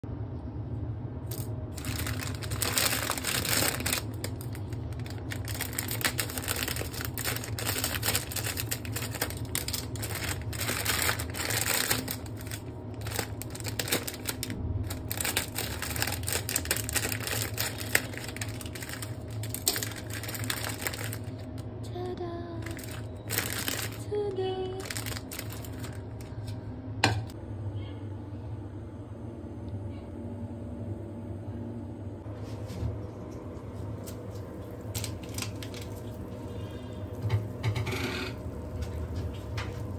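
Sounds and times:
plastic packets crinkling: 0:01.3 - 0:21.6, 0:22.6 - 0:26.6, 0:34.7 - 0:36.4.

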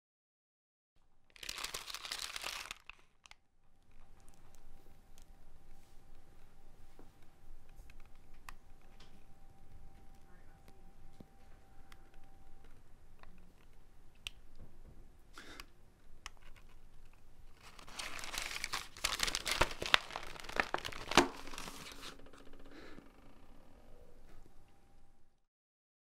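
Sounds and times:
paper crumpling and tearing: 0:01.3 - 0:03.3, 0:17.5 - 0:22.4.

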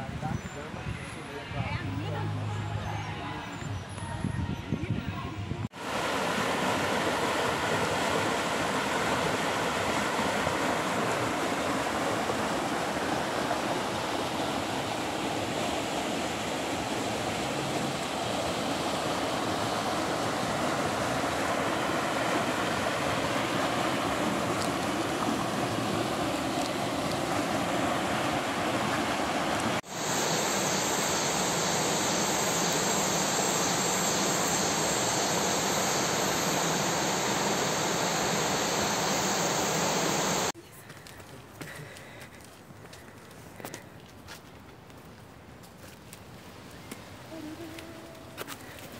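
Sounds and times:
stream water rushing over rocks: 0:05.8 - 0:40.6.

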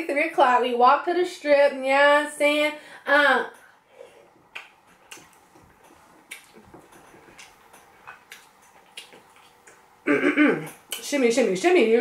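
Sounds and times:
chewing mouth clicks and smacks: 0:04.5 - 0:09.9.

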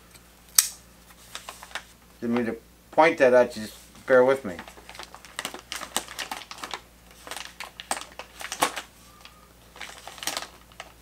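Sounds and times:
coffee bag crinkling: 0:04.4 - 0:11.0.

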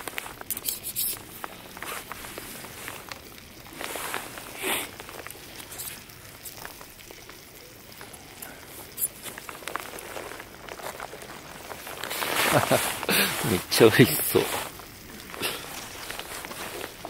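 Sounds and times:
cheese sizzling in a pan: 0:00.0 - 0:17.0
small crackles: 0:00.0 - 0:17.0.

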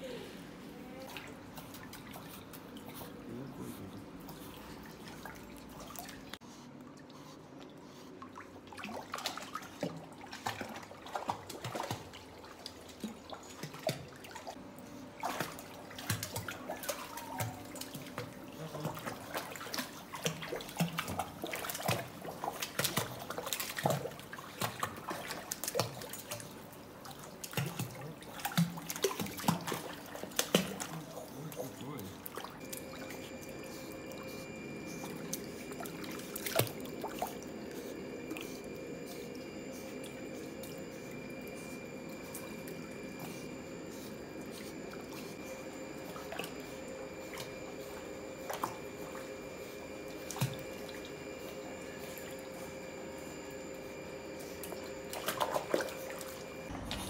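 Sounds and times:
steady low hum: 0:00.0 - 0:57.0
water splashing and dripping: 0:08.3 - 0:14.6, 0:15.2 - 0:31.0, 0:35.1 - 0:37.8.

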